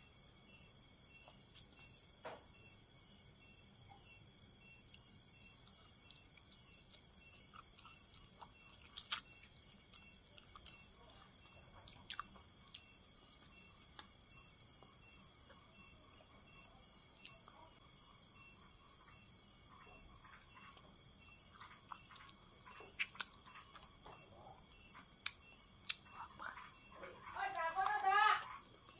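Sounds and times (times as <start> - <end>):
insects chirping: 0.0 - 28.9
person chewing: 4.8 - 14.9, 20.2 - 26.8.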